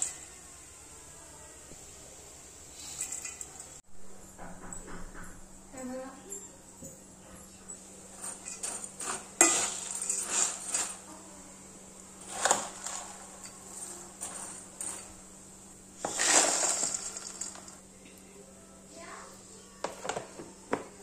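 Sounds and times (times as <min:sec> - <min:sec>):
metal spoon scraping steel bowl: 0:08.1 - 0:11.1, 0:12.2 - 0:15.2
fried snacks rattling into container: 0:08.2 - 0:11.0, 0:12.2 - 0:15.1, 0:16.1 - 0:17.8.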